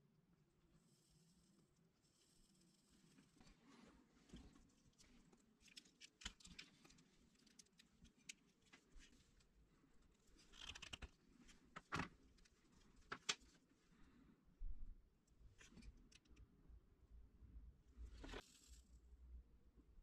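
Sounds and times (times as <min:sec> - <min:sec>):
rustling of hands handling wires: 0:02.8 - 0:13.8.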